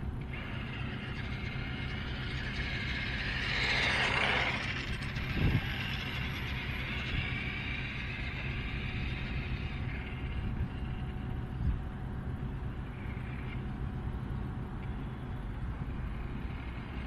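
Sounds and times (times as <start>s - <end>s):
rc car whooshing past: 0.3s - 11.1s
wind buffeting microphone: 1.6s - 12.1s.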